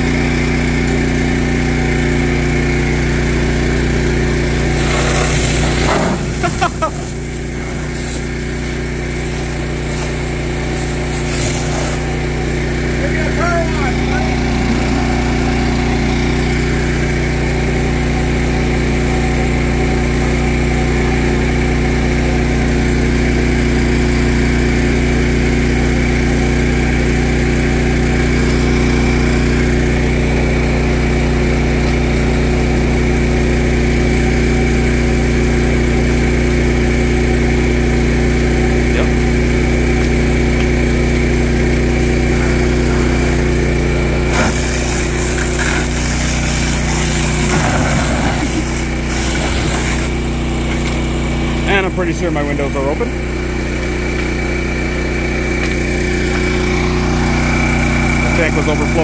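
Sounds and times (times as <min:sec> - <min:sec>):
pump engine running: 0:00.0 - 0:59.0
water jet hissing from hose: 0:04.5 - 0:12.6, 0:42.1 - 0:50.3.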